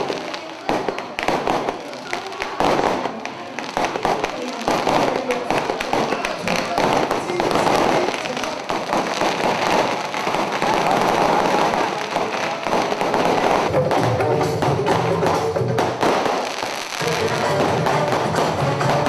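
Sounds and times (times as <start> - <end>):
firecrackers crackling: 0.0 - 19.0
music with held notes: 13.7 - 16.1, 17.0 - 19.0.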